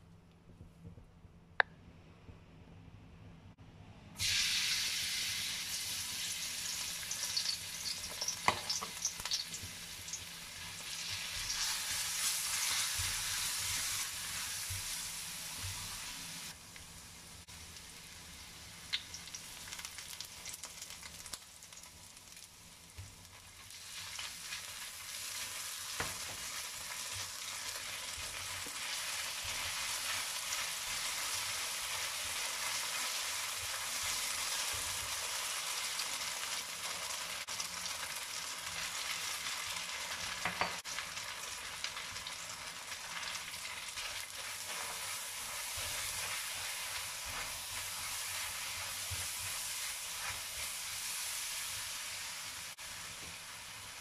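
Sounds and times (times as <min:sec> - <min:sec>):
garlic sizzling in hot oil: 0:04.2 - 0:54.0
spatula scraping wok: 0:44.2 - 0:51.1.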